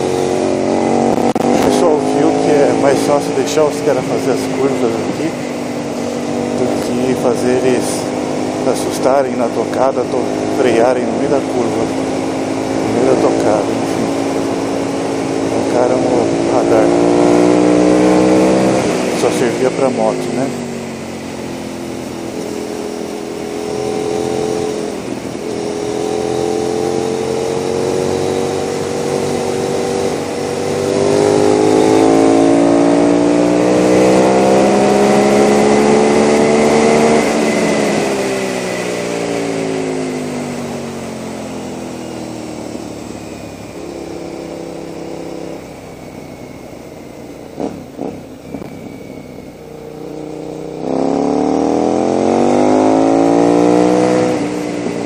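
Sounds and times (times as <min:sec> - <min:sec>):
motorcycle engine revving: 0:00.0 - 0:55.0
rushing wind: 0:44.1 - 0:55.0.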